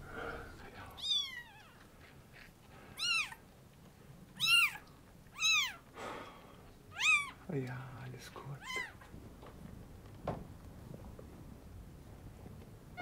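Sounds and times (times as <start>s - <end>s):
kitten mewing: 1.0s - 1.8s, 3.0s - 3.4s, 4.4s - 5.8s, 6.9s - 7.4s.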